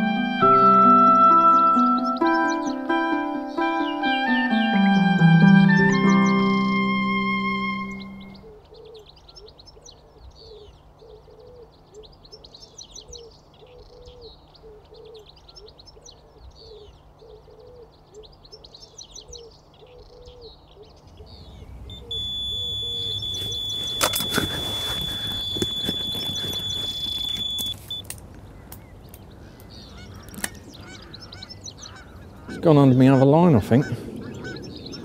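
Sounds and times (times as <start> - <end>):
low repeated bird call: 0.8 - 35.0
songbirds twittering: 1.4 - 6.9, 7.7 - 35.0
electronic bite alarm tone: 21.2 - 28.1.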